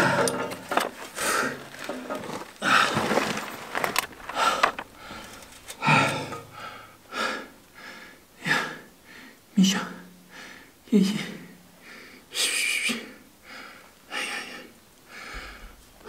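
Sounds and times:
debris scraping and rattling: 0:00.0 - 0:06.3.

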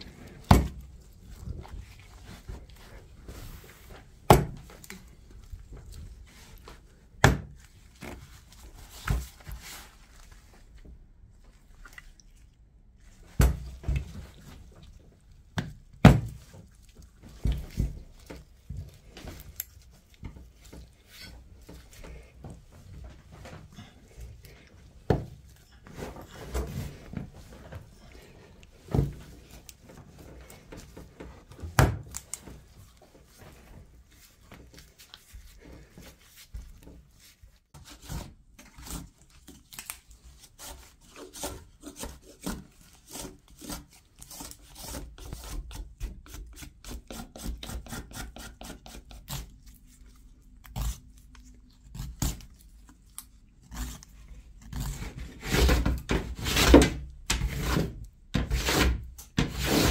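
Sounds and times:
willow rods scraping: 0:53.6 - 0:59.9.

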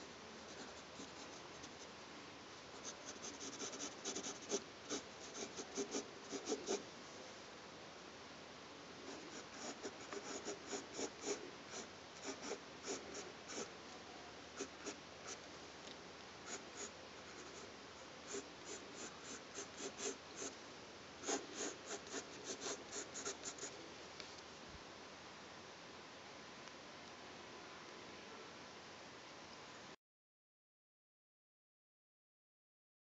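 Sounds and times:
pencil scratching on paper: 0:02.8 - 0:06.8, 0:09.1 - 0:13.7, 0:14.6 - 0:15.4, 0:16.5 - 0:17.7, 0:18.3 - 0:20.5, 0:21.2 - 0:23.7.

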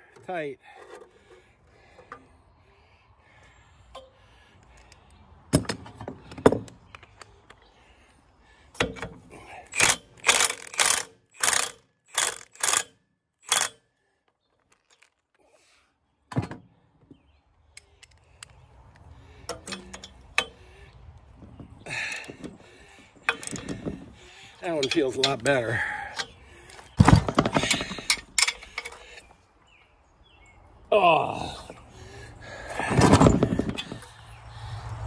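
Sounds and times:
ratchet wrench clicking: 0:09.7 - 0:13.8.

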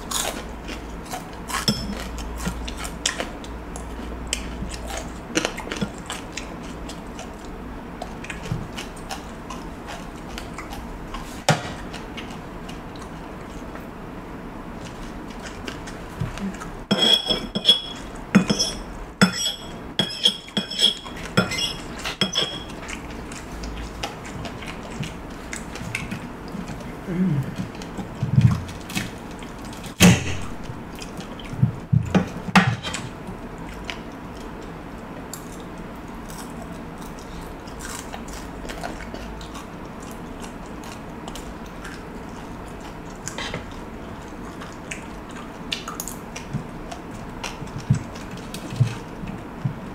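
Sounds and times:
chewing and mouth sounds: 0:00.0 - 0:13.9, 0:14.7 - 0:16.8, 0:21.0 - 0:49.9
cutlery clinking on a plate: 0:16.9 - 0:22.7.

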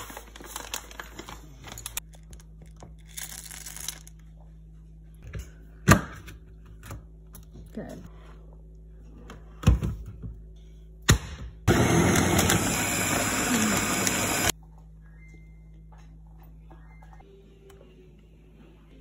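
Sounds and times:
food chopper motor running: 0:11.7 - 0:14.5.

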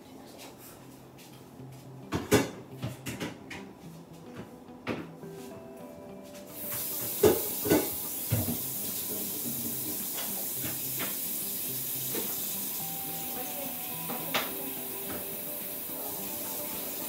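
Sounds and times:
kitchen tap water running: 0:06.6 - 0:17.0.

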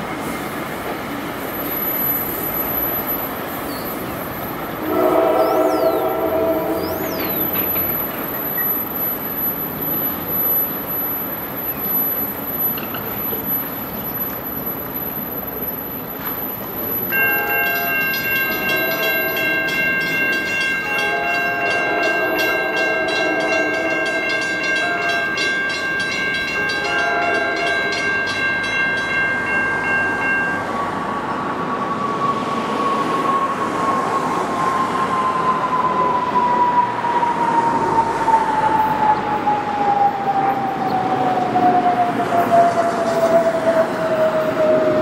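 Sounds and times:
falling whine of train: 0:00.0 - 0:45.0
rumble of passing train: 0:00.0 - 0:45.0
train horn: 0:04.8 - 0:07.8, 0:17.2 - 0:25.8, 0:26.5 - 0:28.1.

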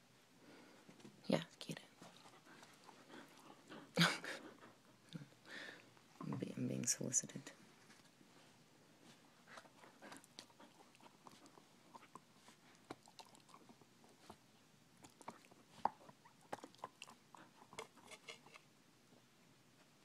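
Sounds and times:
dog chewing a ball: 0:02.0 - 0:05.0, 0:09.4 - 0:18.6.

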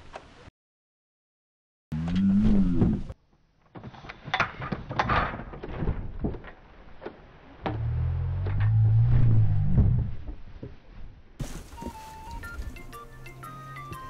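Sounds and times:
background music: 0:11.7 - 0:14.0.

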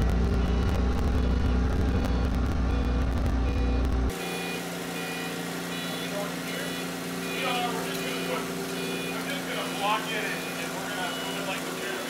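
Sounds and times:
heavy low rumble: 0:00.0 - 0:04.2
forklift engine running: 0:00.0 - 0:12.0.

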